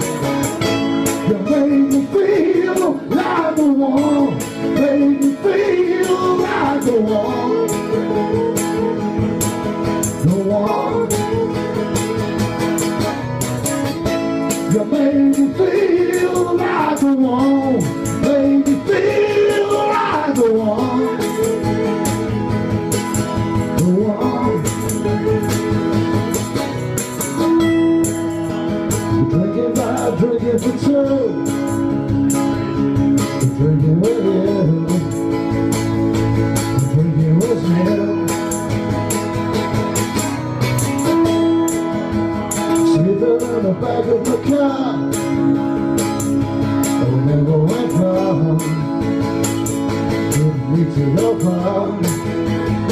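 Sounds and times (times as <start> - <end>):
acoustic guitars strumming: 0.0 - 52.9
man singing: 1.0 - 11.9, 14.5 - 22.6, 23.6 - 25.8, 29.1 - 31.9, 33.2 - 35.5, 36.7 - 38.7, 42.7 - 45.7, 46.9 - 49.5, 50.2 - 52.9
second voice singing: 1.3 - 9.1, 14.7 - 22.2.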